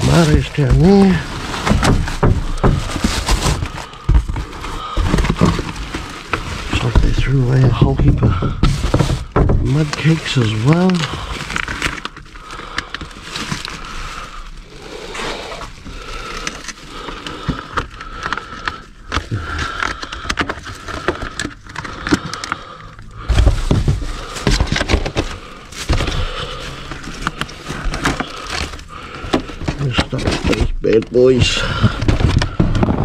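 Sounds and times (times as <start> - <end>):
plastic packaging crinkling: 0.0 - 33.0
heavy thumps in dumpster: 7.0 - 9.9.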